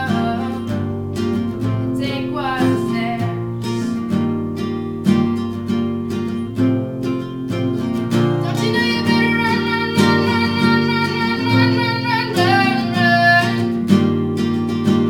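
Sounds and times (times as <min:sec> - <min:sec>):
woman singing: 0:00.0 - 0:01.0, 0:01.6 - 0:04.1, 0:08.4 - 0:13.9
acoustic guitar strumming: 0:00.0 - 0:15.0.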